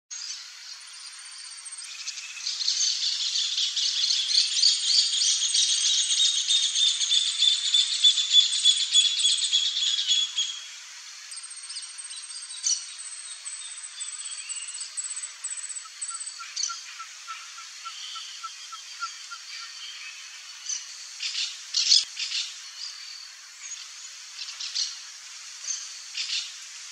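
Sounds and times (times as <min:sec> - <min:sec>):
fast-pulsing insect chorus: 0:00.2 - 0:26.9.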